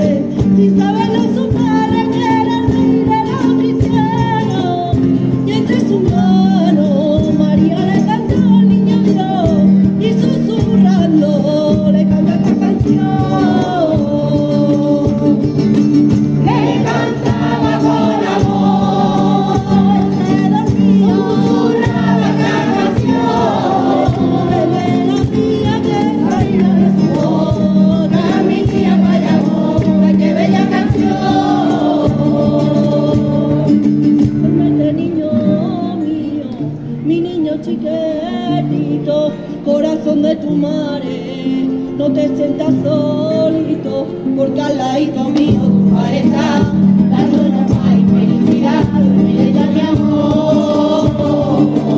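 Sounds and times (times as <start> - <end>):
acoustic guitar: 0.0 - 51.9
mixed choir singing: 16.4 - 34.0, 45.6 - 51.9.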